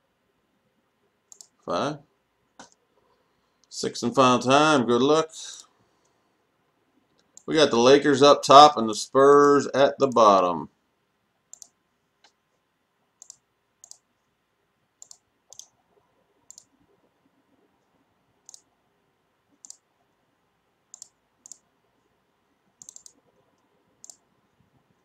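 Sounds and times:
computer mouse clicking: 1.3 - 1.6, 11.5 - 12.4, 13.2 - 14.1, 15.0 - 15.8, 16.5 - 16.8, 18.4 - 18.7, 19.5 - 19.9, 20.9 - 21.7, 22.8 - 24.3.

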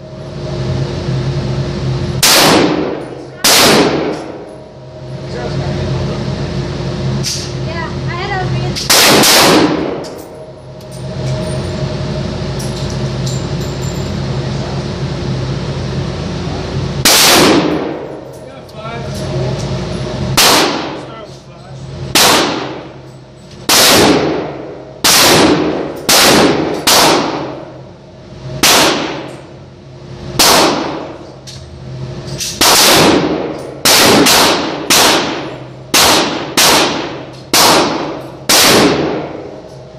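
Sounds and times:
rifle shots echoing indoors: 2.2 - 4.5, 8.8 - 10.2, 17.0 - 18.3, 20.3 - 21.2, 22.1 - 23.0, 23.6 - 27.8, 28.6 - 29.4, 30.4 - 31.2, 32.4 - 39.6.

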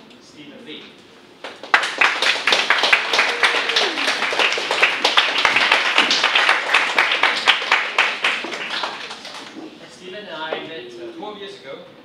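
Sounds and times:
audience applauding: 1.4 - 9.7.

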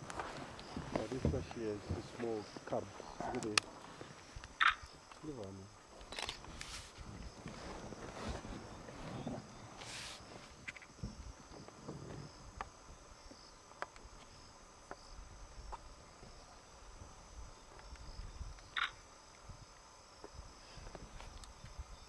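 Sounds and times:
crickets chirping: 0.0 - 22.0
faint clicks: 3.3 - 6.7.

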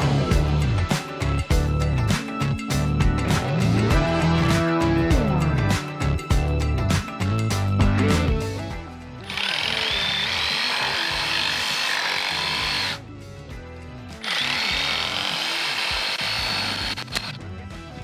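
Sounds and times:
background music: 0.0 - 18.0
reciprocating saw cutting plastic pipe: 9.3 - 13.0, 14.2 - 17.4.

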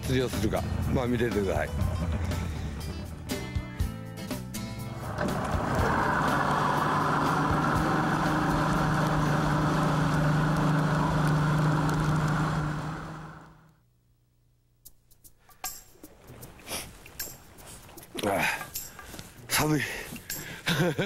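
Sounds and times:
outboard motor boat running fast: 4.8 - 13.7
rushing water noise: 4.9 - 13.6.

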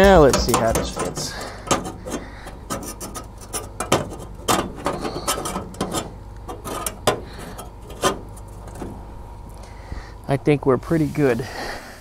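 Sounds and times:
sheet metal clicking and scraping: 0.0 - 9.0.

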